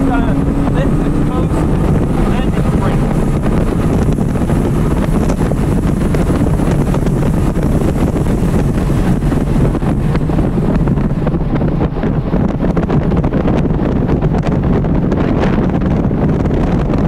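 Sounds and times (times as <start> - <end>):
car engine at high revs: 0.0 - 17.0
wind and road noise: 0.0 - 17.0.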